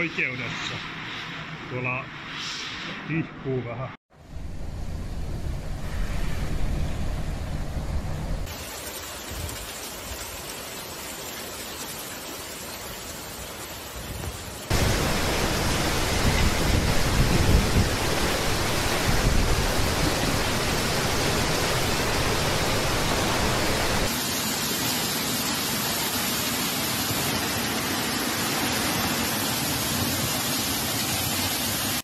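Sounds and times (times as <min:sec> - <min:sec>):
wind gusts rumbling on microphone: 0:04.2 - 0:08.5, 0:14.0 - 0:24.1
heavy rain: 0:05.8 - 0:32.0.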